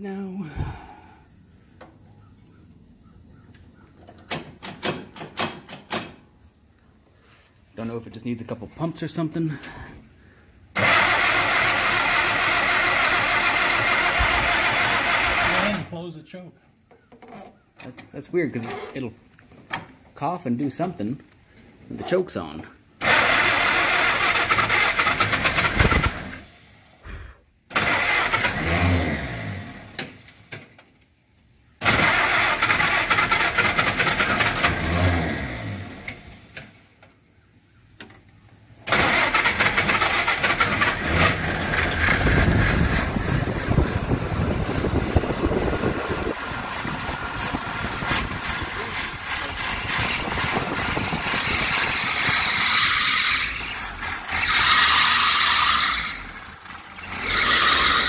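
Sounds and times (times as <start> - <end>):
engine sputtering and running roughly: 10.8 - 15.9, 23.0 - 26.5, 31.8 - 35.9, 38.9 - 58.0
drive belt squealing: 46.6 - 58.0.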